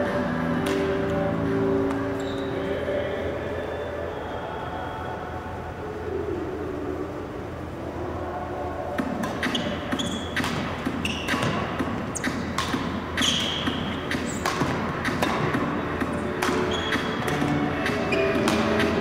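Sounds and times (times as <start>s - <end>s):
racket hitting shuttlecock: 0.6s - 1.2s, 9.0s - 19.0s
sneaker squeaks: 1.8s - 2.7s, 9.3s - 15.5s, 16.1s - 19.0s.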